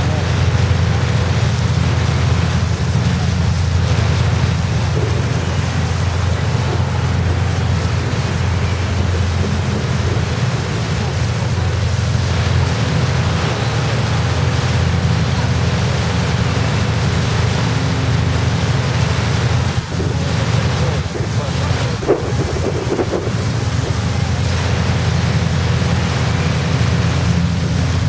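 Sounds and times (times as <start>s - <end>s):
wind buffeting microphone: 0.0s - 13.4s, 19.1s - 28.0s
voices: 0.0s - 27.0s
boat engine droning: 0.0s - 28.0s.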